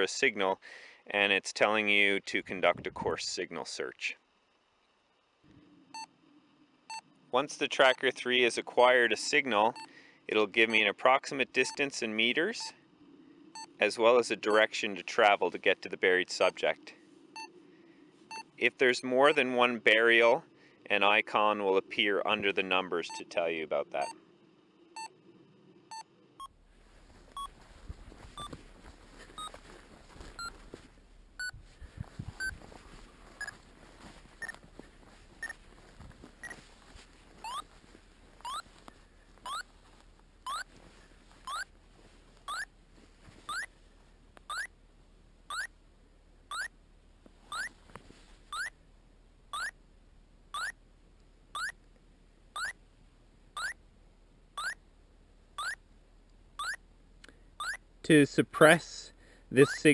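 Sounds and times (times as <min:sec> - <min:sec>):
transceiver beeping: 0:28.3 - 0:28.6, 0:29.3 - 0:29.6, 0:30.2 - 0:30.6, 0:31.4 - 0:31.6, 0:32.3 - 0:32.6, 0:33.4 - 0:33.6, 0:36.4 - 0:36.7, 0:37.4 - 0:37.7, 0:38.4 - 0:38.7, 0:39.4 - 0:39.7, 0:40.5 - 0:40.7, 0:41.4 - 0:41.7, 0:42.5 - 0:42.7, 0:43.4 - 0:43.7, 0:44.5 - 0:44.7, 0:47.5 - 0:47.7, 0:48.5 - 0:48.7, 0:51.6 - 0:51.8, 0:52.6 - 0:52.8, 0:55.6 - 0:55.8, 0:57.6 - 0:57.8, 0:59.6 - 0:59.9.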